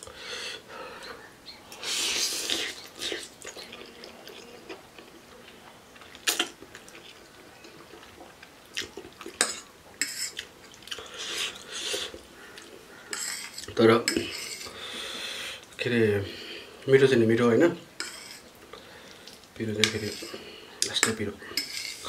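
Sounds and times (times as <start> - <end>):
chewing: 1.7 - 14.8.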